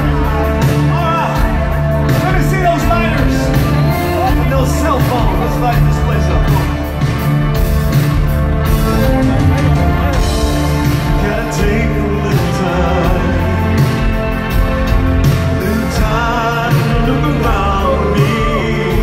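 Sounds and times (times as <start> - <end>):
rock band and orchestra ballad: 0.0 - 19.0
person singing: 10.6 - 14.9, 15.6 - 19.0.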